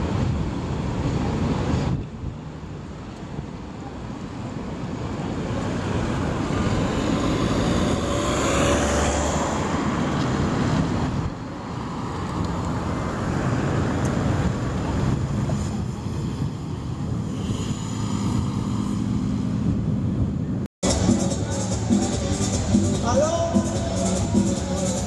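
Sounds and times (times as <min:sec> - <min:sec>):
street traffic: 0:00.0 - 0:25.0
vehicle passing close by: 0:05.5 - 0:20.2.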